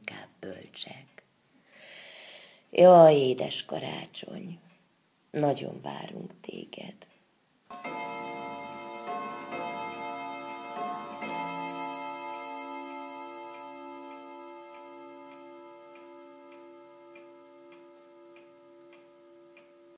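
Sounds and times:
faint steady ticking: 3.7 - 19.9
ringing chord: 7.7 - 19.9.

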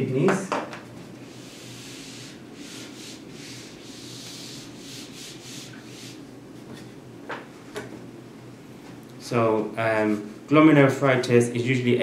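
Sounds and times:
whiteboard wiping swishes: 1.2 - 6.2.

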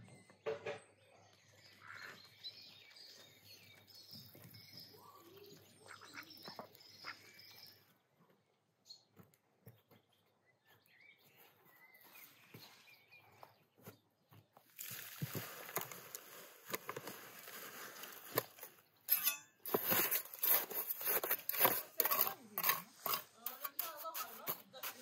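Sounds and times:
bucket scraping against stones: 14.7 - 25.0
wet concrete sliding from a bucket: 14.8 - 18.8, 19.7 - 25.0
trowel scraping and knocking: 16.6 - 25.0.

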